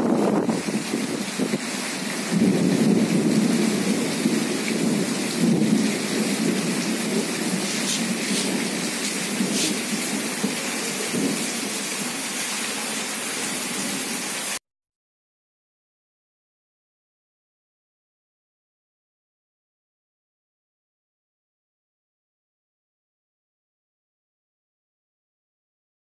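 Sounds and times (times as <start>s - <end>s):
steady rain falling: 0.0s - 14.6s.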